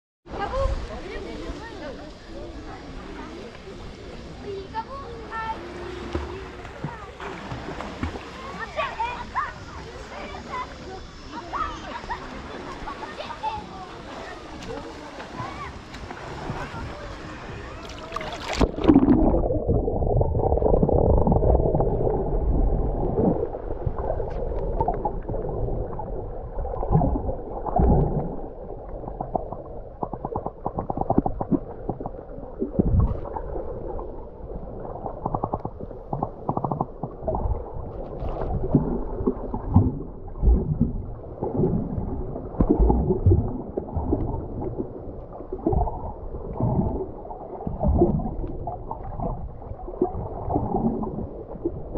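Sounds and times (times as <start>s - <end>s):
underwater gurgling and sloshing: 0.3s - 51.9s
dull underwater thumps: 29.1s - 33.4s, 35.2s - 44.7s.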